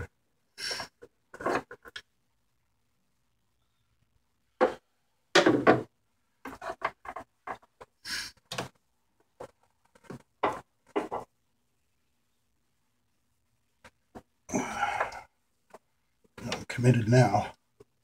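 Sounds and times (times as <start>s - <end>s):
rubber elbow rubbing and knocking: 4.5s - 11.4s.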